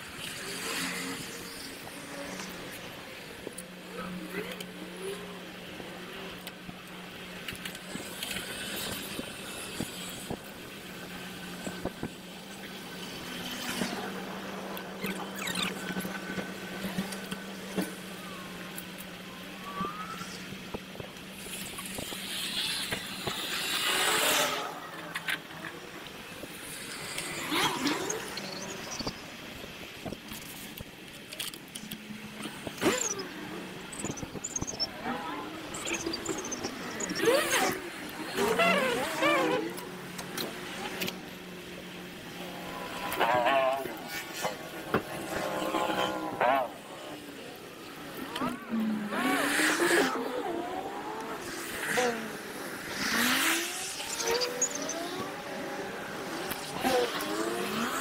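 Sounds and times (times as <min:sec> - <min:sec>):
wind and road noise: 0:00.0 - 0:58.0
loud sweeping chirps: 0:35.7 - 0:37.8.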